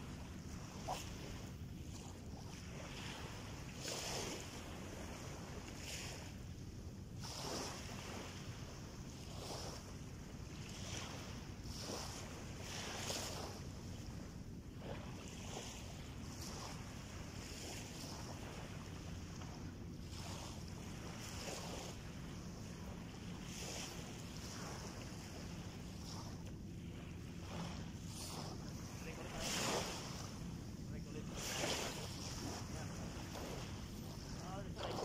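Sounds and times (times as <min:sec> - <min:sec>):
small waves lapping on sand: 0:00.0 - 0:35.0
steady low rumble: 0:18.7 - 0:35.0.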